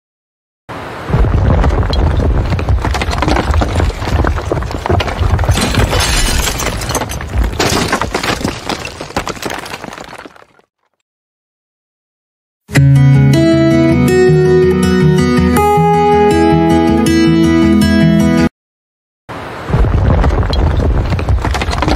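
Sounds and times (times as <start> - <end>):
debris crashing and shattering: 1.6 - 10.7, 20.8 - 21.9.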